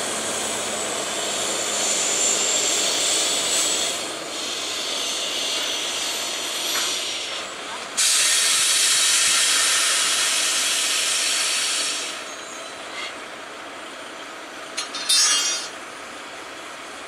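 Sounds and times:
compressed air hissing: 3.5 - 7.4, 8.0 - 12.2.

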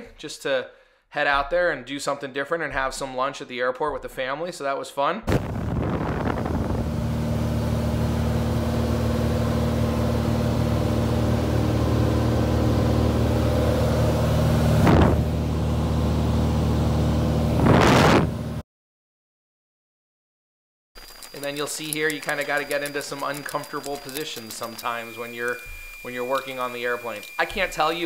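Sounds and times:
airplane engine and propeller droning: 5.5 - 17.6
brief rushes of noise: 17.5 - 18.4.

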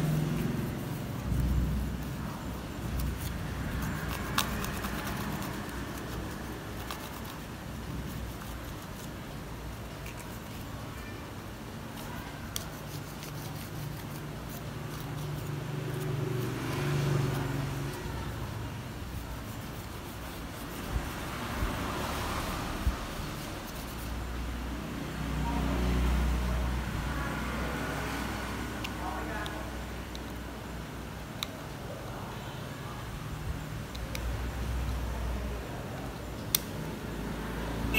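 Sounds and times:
road traffic rumble: 0.0 - 37.9.

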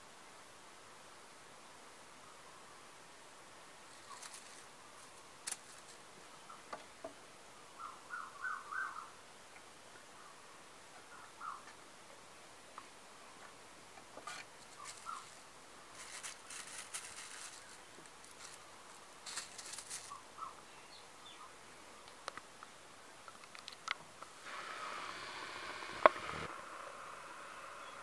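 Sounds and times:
steady hiss: 0.0 - 28.0
crinkly plastic rustling: 14.7 - 20.2.

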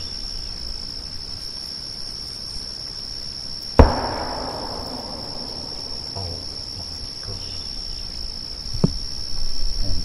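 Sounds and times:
night insects chirring: 0.0 - 10.0
loud explosive bang: 3.8 - 7.2.

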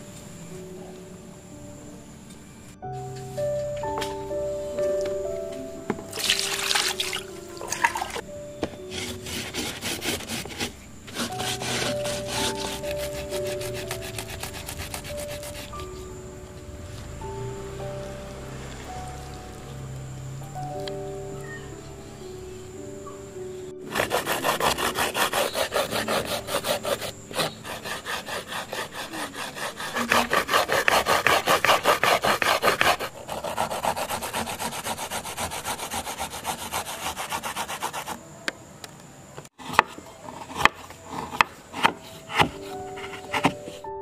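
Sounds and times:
grating on metal grater: 8.9 - 15.8, 23.9 - 38.2
knife chopping on wooden board: 39.6 - 42.6.

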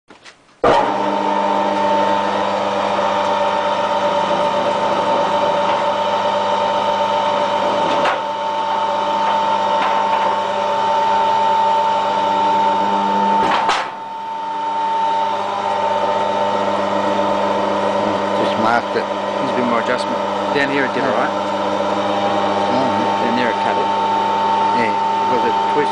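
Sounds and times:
machine motor hum: 0.6 - 25.9.

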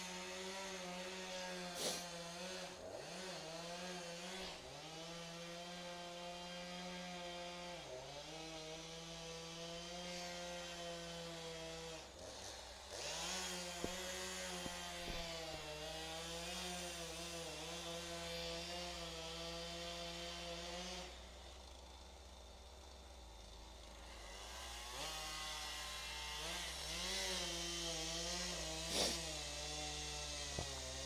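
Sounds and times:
chainsaw running at high revs: 0.0 - 31.0.

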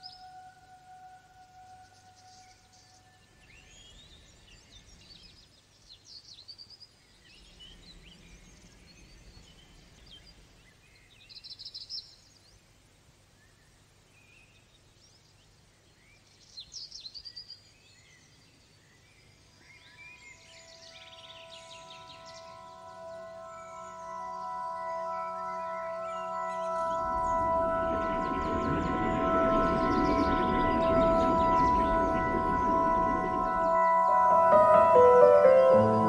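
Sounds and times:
faint birdsong: 0.0 - 36.0.

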